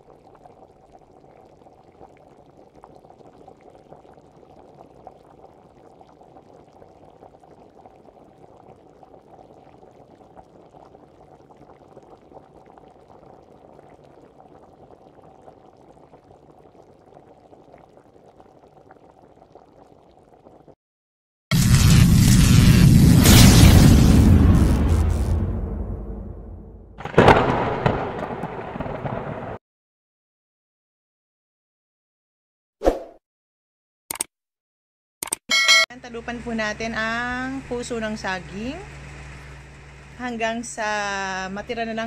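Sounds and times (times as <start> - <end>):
stew bubbling with small pops: 0.0 - 20.8.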